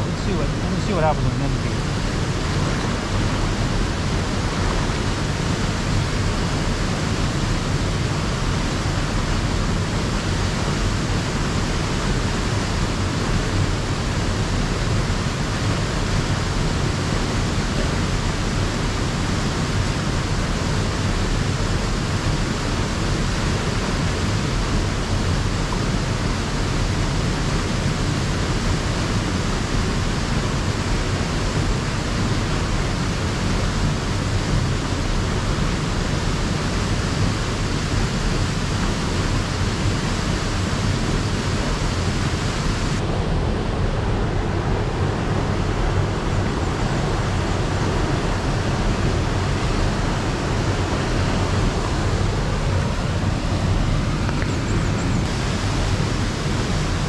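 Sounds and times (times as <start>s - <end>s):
waterfall rushing into pool: 0.0s - 57.0s.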